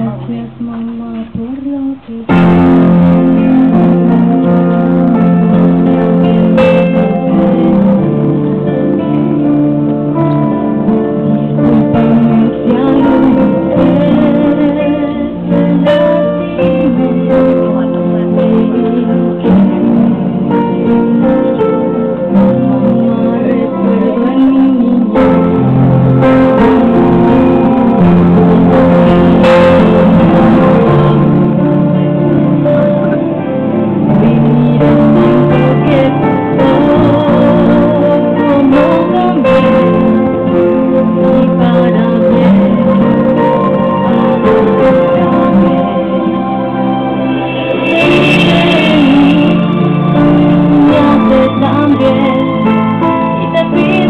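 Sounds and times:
girl singing over loudspeakers: 0:00.0 - 0:04.8, 0:11.4 - 0:25.8, 0:29.1 - 0:33.2, 0:34.0 - 0:46.2, 0:47.4 - 0:54.0
plucked string backing music: 0:00.0 - 0:54.0.

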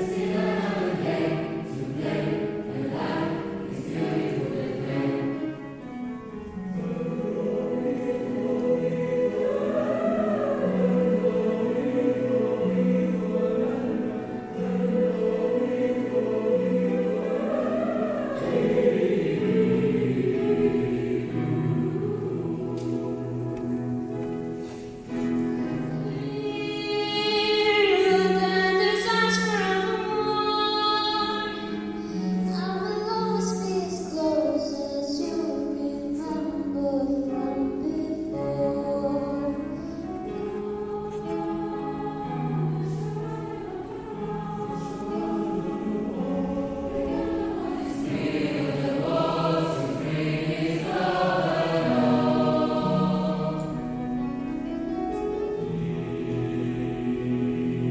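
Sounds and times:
choir singing: 0:00.0 - 0:57.9.

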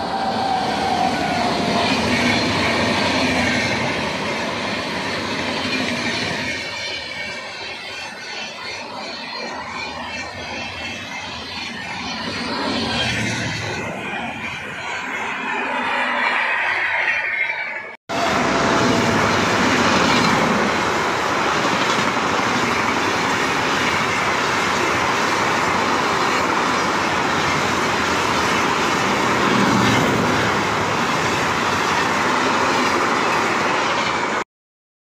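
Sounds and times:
train wheels rumbling on rail: 0:00.0 - 0:17.0, 0:18.1 - 0:34.4
clickety-clack of rail joints: 0:21.4 - 0:34.4.

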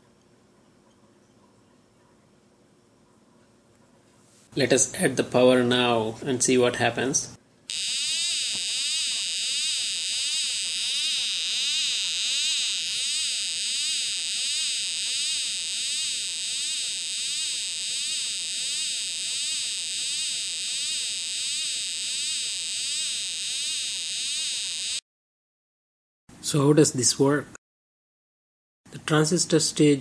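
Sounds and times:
electronic siren sweeping up and down: 0:07.7 - 0:25.0.

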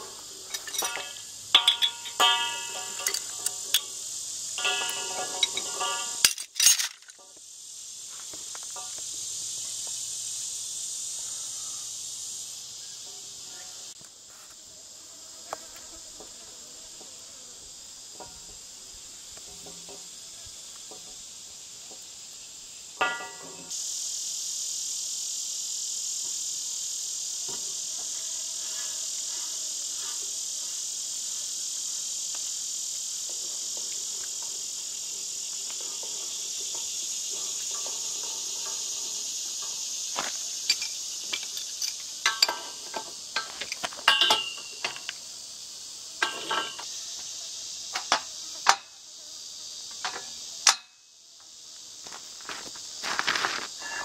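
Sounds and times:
insects droning: 0:00.0 - 0:54.0
sharp clinks: 0:00.5 - 0:04.0, 0:04.6 - 0:07.2, 0:37.3 - 0:42.8, 0:43.4 - 0:45.1.

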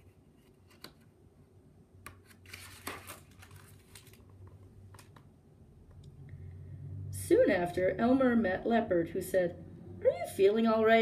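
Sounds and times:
paper page rustling: 0:00.0 - 0:01.1, 0:02.1 - 0:05.1.

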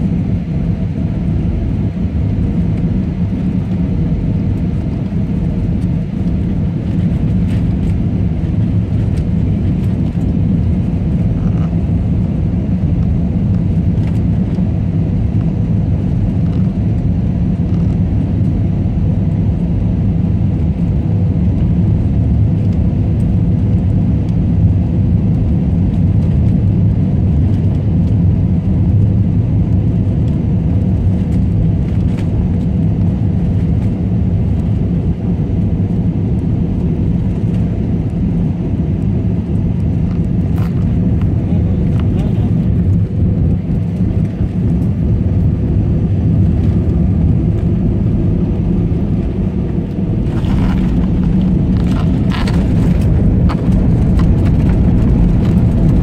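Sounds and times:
airliner engines rumbling: 0:00.0 - 0:56.0
rushing air in cabin: 0:36.8 - 0:56.0.

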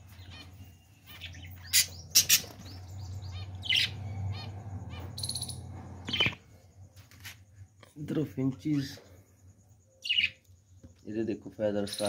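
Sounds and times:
budgerigars chirping: 0:00.2 - 0:06.4, 0:10.0 - 0:10.4.

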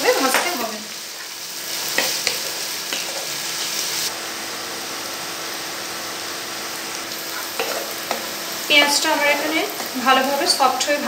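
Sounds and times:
onions sizzling in oil: 0:00.0 - 0:11.0
spatula scraping a pan: 0:07.3 - 0:10.2.

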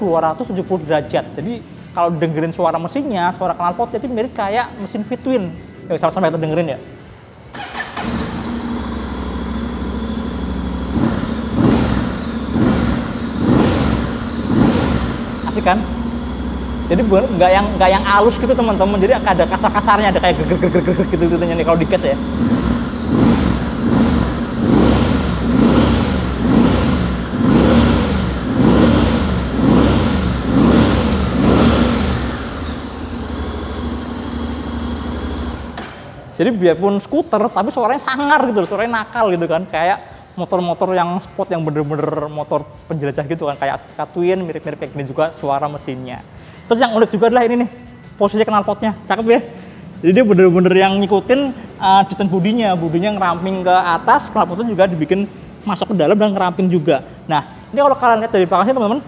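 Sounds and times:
motorcycle engine idling and revving: 0:07.5 - 0:36.3, 0:46.8 - 0:59.0.

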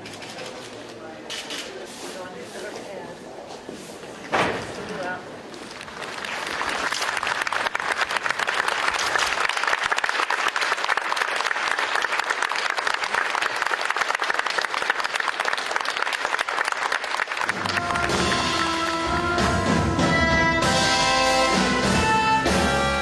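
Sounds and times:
audience applauding: 0:05.8 - 0:19.7.

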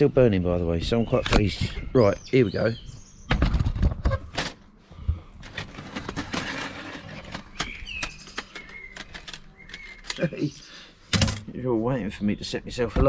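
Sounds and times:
bird chirping: 0:00.3 - 0:04.2, 0:07.1 - 0:11.0, 0:11.6 - 0:13.0.

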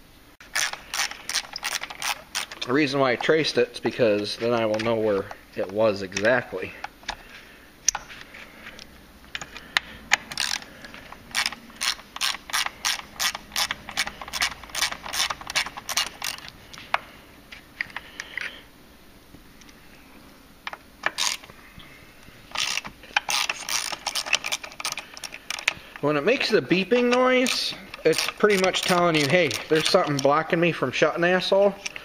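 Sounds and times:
socket ratchet clicking: 0:00.4 - 0:02.7, 0:09.3 - 0:17.0, 0:21.0 - 0:21.5, 0:22.5 - 0:25.8, 0:26.8 - 0:30.4.

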